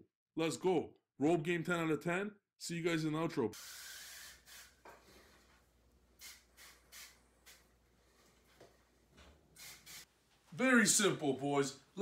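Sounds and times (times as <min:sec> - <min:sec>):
faint short hissing: 0:03.6 - 0:05.4, 0:06.2 - 0:07.7, 0:09.6 - 0:10.1.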